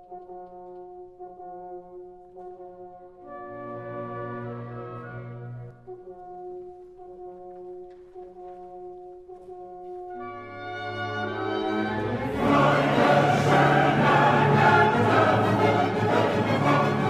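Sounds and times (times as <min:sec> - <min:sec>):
orchestra playing: 0:03.2 - 0:06.0, 0:10.1 - 0:17.0
choir singing: 0:11.2 - 0:17.0.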